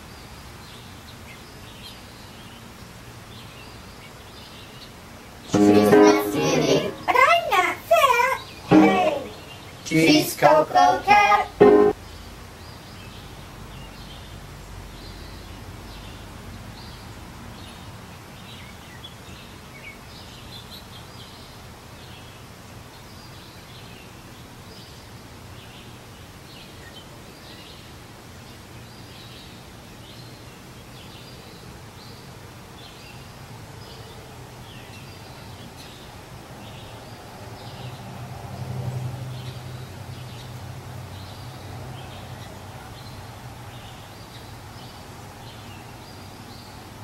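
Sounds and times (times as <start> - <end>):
background environmental hum: 0.0 - 38.6
birds chirping: 5.6 - 12.0.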